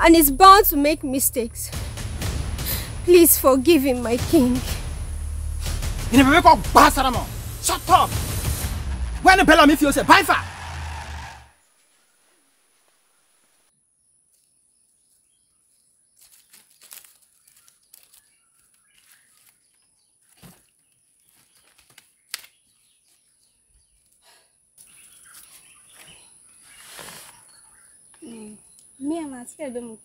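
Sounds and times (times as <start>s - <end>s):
dry leaves rustling and crackling: 16.1s - 22.5s
sticks snapping: 16.2s - 19.6s, 21.7s - 22.6s.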